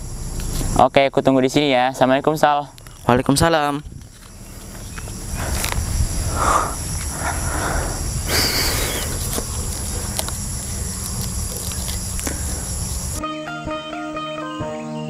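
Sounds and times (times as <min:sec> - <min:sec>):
high insect drone: 0:00.0 - 0:15.0
wind rumbling on microphone: 0:02.7 - 0:13.2
rustling: 0:03.9 - 0:13.2.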